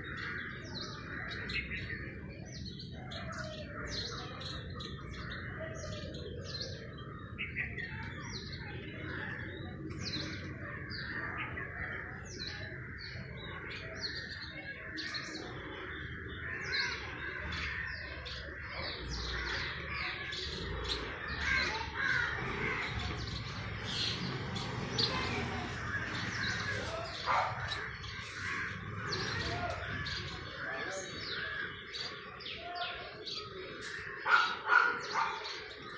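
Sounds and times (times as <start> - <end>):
birds chattering: 0.0 - 35.9.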